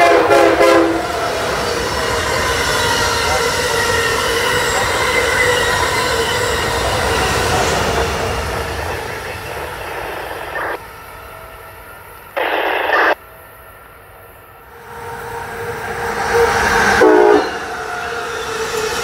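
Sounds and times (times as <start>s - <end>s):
train horn blasts: 0.0s - 1.2s, 16.9s - 18.0s
rushing train noise: 0.0s - 19.0s.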